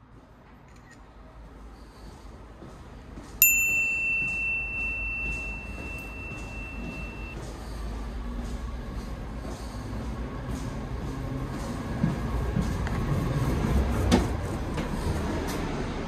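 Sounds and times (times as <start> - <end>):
train rumble: 1.2 - 16.0
bell ringing: 3.4 - 7.4.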